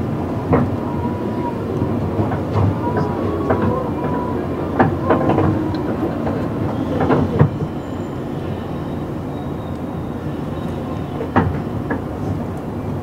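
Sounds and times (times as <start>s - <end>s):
train running rumble: 0.0s - 13.0s
wheel clacks over rail joints: 0.4s - 8.6s, 9.7s - 13.0s.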